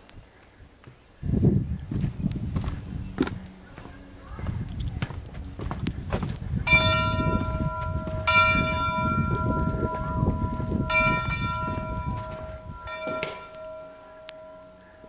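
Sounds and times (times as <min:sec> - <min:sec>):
large metal bell ringing: 0:06.6 - 0:15.0.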